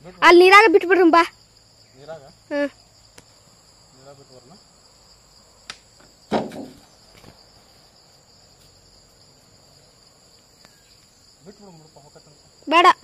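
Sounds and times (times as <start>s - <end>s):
insects shrilling: 0.0s - 13.0s
brief knock: 6.3s - 6.8s.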